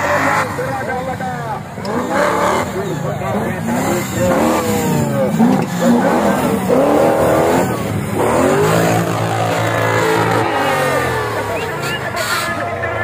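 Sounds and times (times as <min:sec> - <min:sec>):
buggy engine revving: 0:00.0 - 0:13.0.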